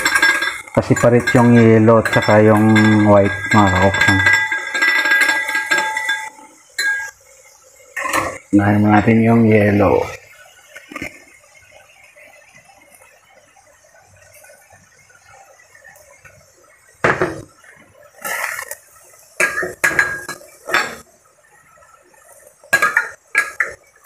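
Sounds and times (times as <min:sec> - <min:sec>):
metal spatula scraping a pan: 0:00.0 - 0:07.1, 0:18.2 - 0:21.0
vegetables sizzling in a pan: 0:00.0 - 0:24.0.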